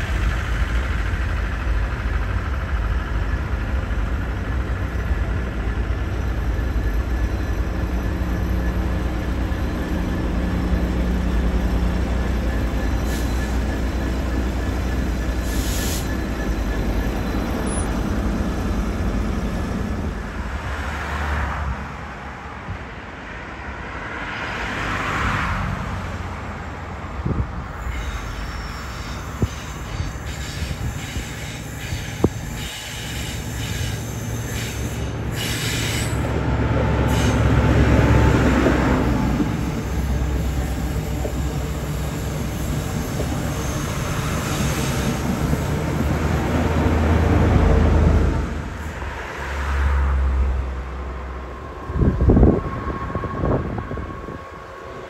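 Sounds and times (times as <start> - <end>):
train wheels squealing: 0.0 - 21.1, 27.6 - 47.8
diesel train passing: 0.0 - 55.0.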